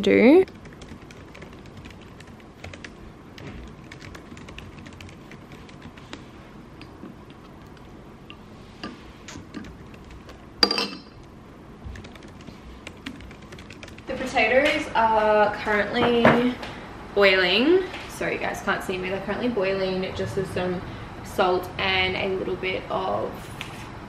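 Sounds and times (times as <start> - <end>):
laptop keyboard typing: 0.4 - 8.0, 9.3 - 10.4, 11.9 - 14.2.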